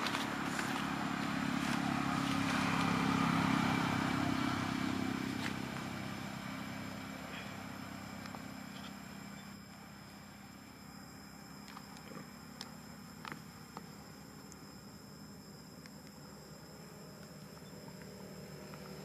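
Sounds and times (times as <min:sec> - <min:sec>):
distant vehicle engine passing: 0:00.0 - 0:10.5, 0:16.6 - 0:19.0.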